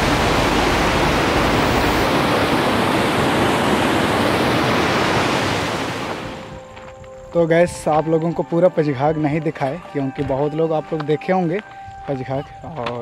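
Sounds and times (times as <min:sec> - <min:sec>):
waterfall rushing into pool: 0:00.0 - 0:06.6.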